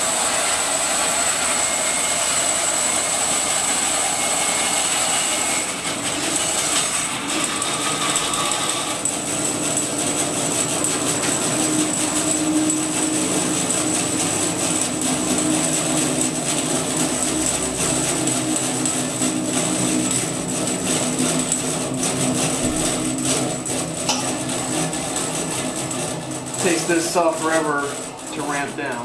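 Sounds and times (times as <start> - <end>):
bandsaw cutting log: 0.0 - 29.0.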